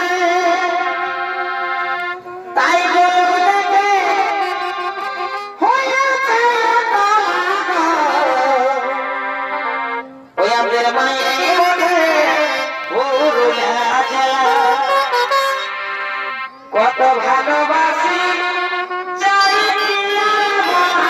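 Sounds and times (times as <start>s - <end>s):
folk instrument long bending notes: 0.0s - 21.0s.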